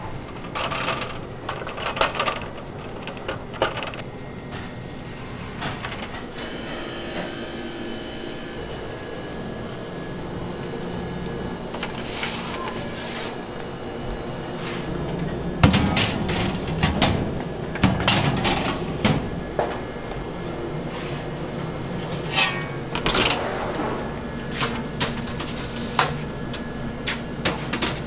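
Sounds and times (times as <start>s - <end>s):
kitchen background hum: 0.0s - 28.0s
metal tins clattering and scraping: 22.1s - 25.9s.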